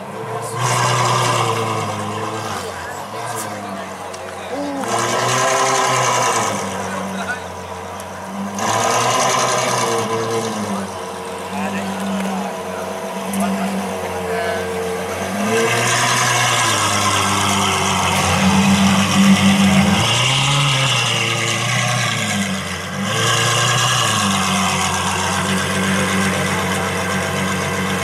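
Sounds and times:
car engine idling and revving: 0.0s - 28.0s.

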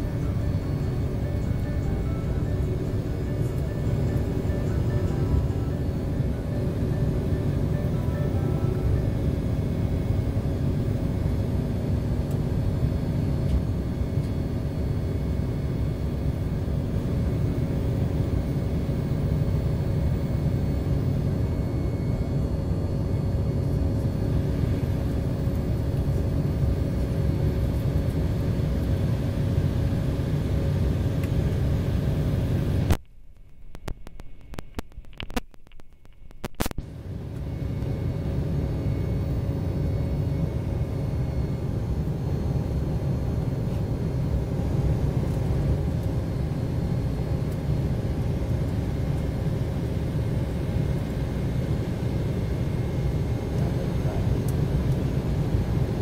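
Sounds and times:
aircraft cabin rumble: 0.0s - 56.0s
faint steady hum: 0.0s - 56.0s
clicks: 32.9s - 36.8s.

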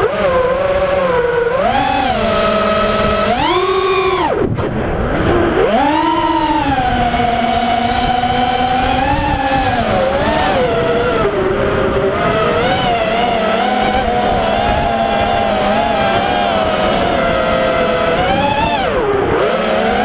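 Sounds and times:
drone motors whining: 0.0s - 20.0s
low rushing noise: 4.1s - 19.5s.

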